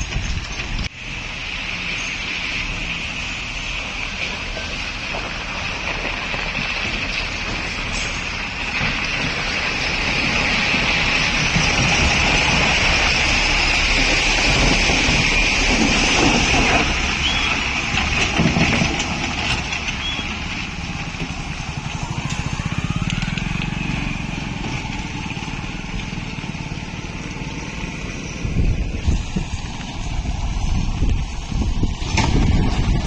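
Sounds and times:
lorry diesel engine passing: 0:00.0 - 0:33.0
tyres splashing through wet road: 0:00.0 - 0:33.0
motorcycle engine passing: 0:21.6 - 0:30.1.

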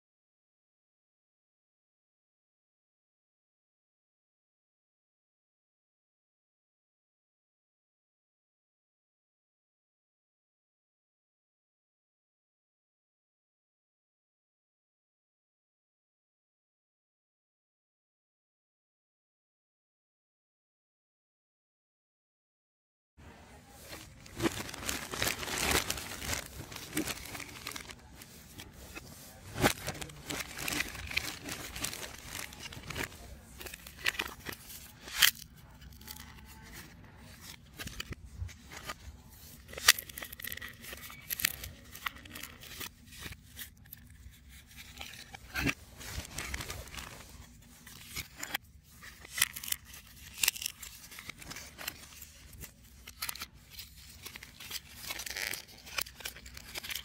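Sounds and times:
puzzle pieces rustling and clicking: 0:23.9 - 0:57.0.

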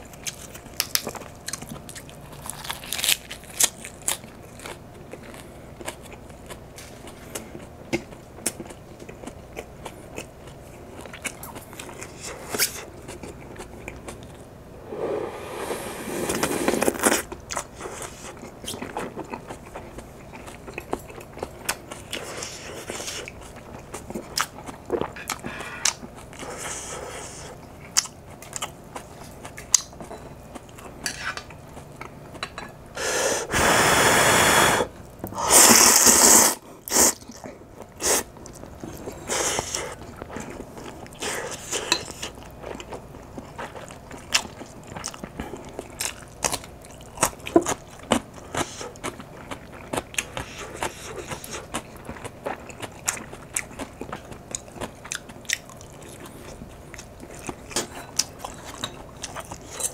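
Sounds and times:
slurping noodles: 0:14.8 - 0:17.3, 0:33.0 - 0:37.2
chewing and mouth clicks: 0:36.9 - 0:59.9.

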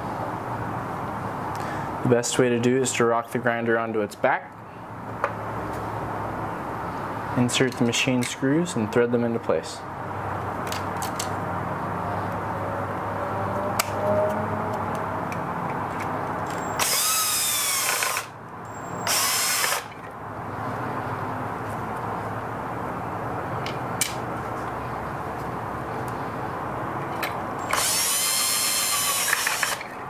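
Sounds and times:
cordless drill running: 0:16.5 - 0:19.9, 0:27.6 - 0:29.9.

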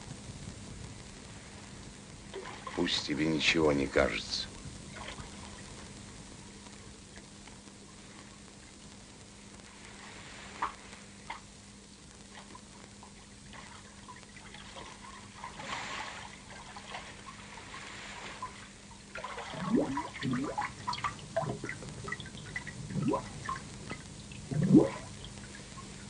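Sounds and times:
water splashing and bubbling: 0:02.3 - 0:03.1, 0:04.9 - 0:05.9, 0:12.2 - 0:26.0.

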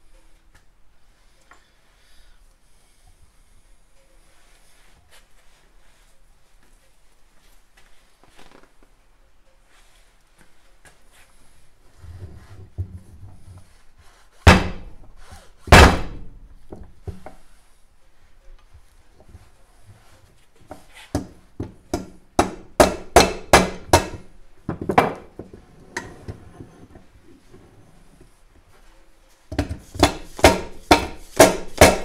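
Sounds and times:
rubber mallet striking metal: 0:21.9 - 0:24.3, 0:29.5 - 0:32.0.

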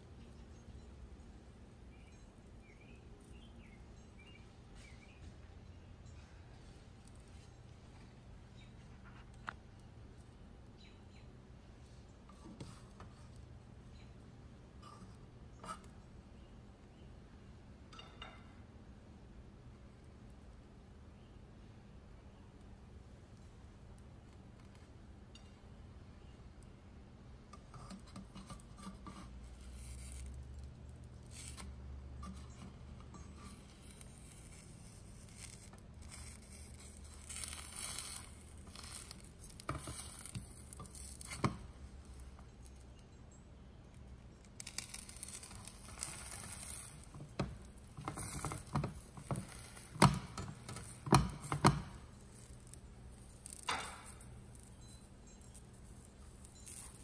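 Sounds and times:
spatula scraping frying pan: 0:44.7 - 0:53.8.

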